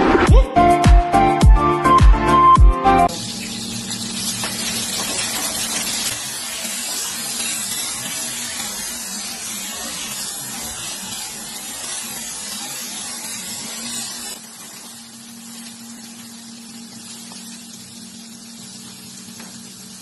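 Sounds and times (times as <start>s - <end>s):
wok hissing and sizzling: 3.1s - 20.0s.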